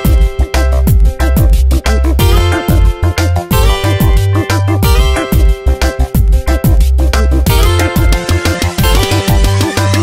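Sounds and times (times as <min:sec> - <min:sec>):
deep bass: 0:00.0 - 0:10.0
quick drum beat: 0:07.5 - 0:10.0.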